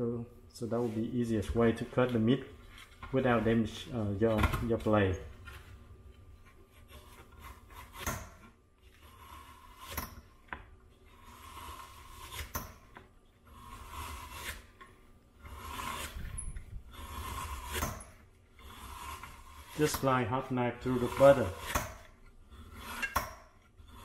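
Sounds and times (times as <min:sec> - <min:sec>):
slicer blade scraping through meat: 0:11.1 - 0:12.9, 0:13.5 - 0:14.8, 0:15.4 - 0:20.2, 0:20.8 - 0:24.0.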